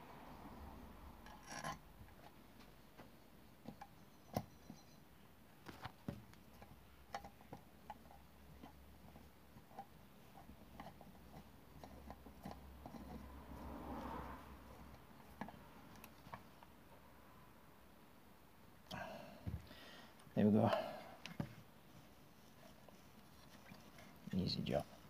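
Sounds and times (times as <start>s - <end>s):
rubbing: 21.4s - 25.0s.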